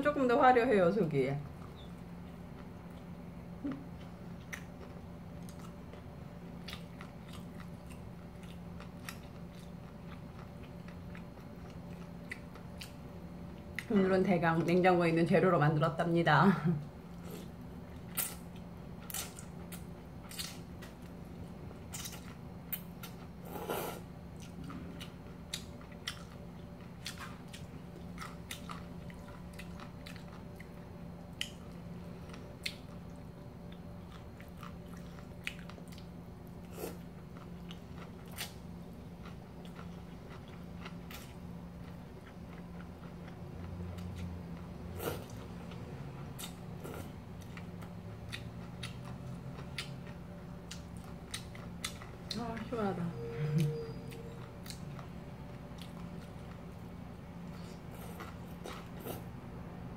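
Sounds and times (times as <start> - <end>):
steady low hum: 0.0 - 59.9
wet chewing: 1.6 - 13.0, 18.1 - 21.2, 21.8 - 52.4.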